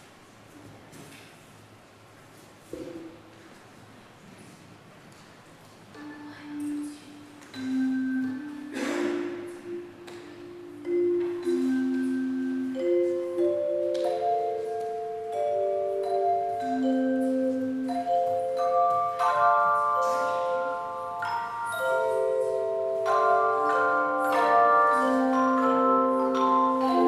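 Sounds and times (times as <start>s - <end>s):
handbell choir ringing: 10.8s - 27.0s.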